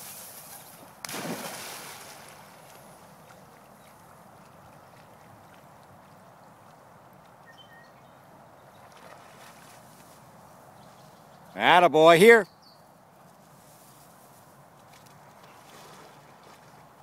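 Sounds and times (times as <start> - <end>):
faint outdoor water noise: 0.0 - 17.0
dog splashing into water: 1.0 - 2.8.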